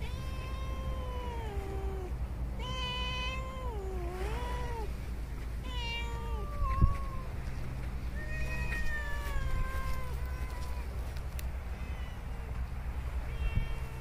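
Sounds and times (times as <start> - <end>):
cats meowing: 0.0 - 5.0, 5.6 - 7.4, 8.1 - 14.0.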